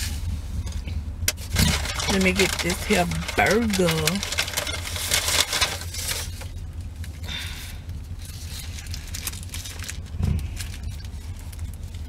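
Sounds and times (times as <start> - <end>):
steady low hum: 0.0 - 12.0
paper wrapper crinkling: 1.4 - 7.2, 8.2 - 12.0.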